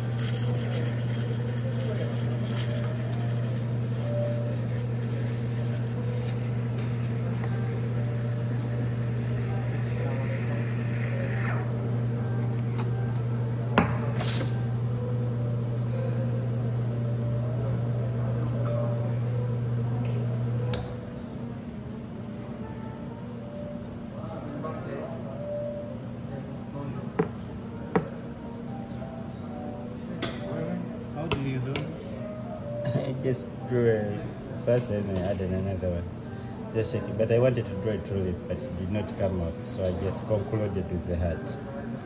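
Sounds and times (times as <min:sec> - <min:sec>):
espresso machine pump humming: 0:00.0 - 0:21.2.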